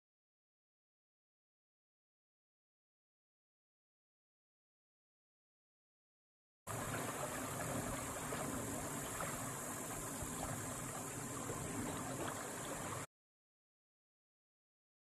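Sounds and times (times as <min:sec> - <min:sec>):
river water rushing: 0:06.7 - 0:13.1.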